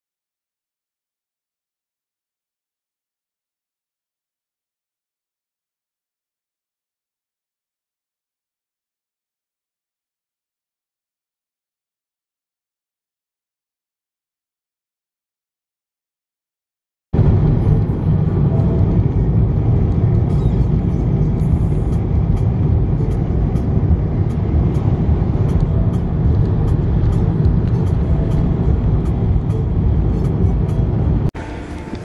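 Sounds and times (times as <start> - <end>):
road vehicle driving: 17.2 - 32.0.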